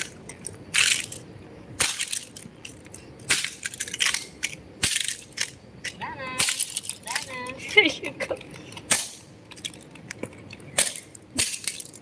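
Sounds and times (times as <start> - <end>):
plastic toy crunching underfoot: 0.0 - 1.2
fragments scattering clicks: 8.9 - 12.0.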